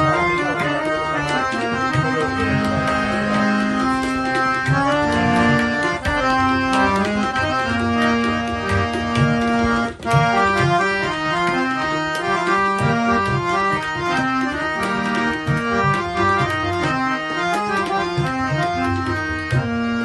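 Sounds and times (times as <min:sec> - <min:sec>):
harmonium playing a melody: 0:00.0 - 0:20.0.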